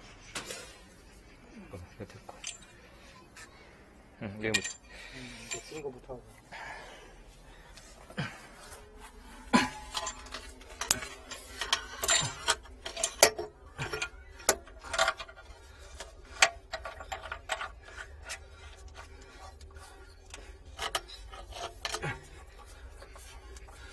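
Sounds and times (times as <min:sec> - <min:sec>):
metal pipe fittings clinking: 0:02.2 - 0:02.8, 0:04.4 - 0:06.1, 0:08.6 - 0:23.9.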